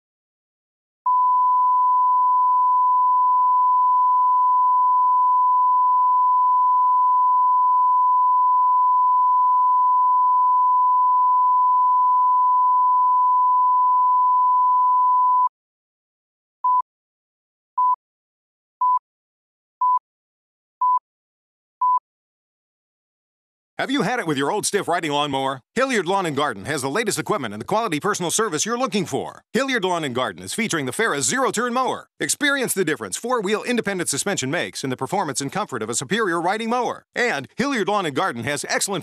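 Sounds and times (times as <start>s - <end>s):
pure reference tone: 1.1s - 15.5s
short countdown beeps: 20.8s - 21.0s, 21.8s - 22.0s.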